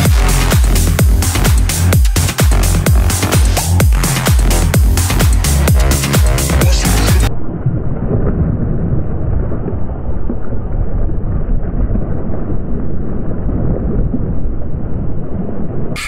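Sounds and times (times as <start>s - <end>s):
wind buffeting microphone: 7.4s - 16.0s.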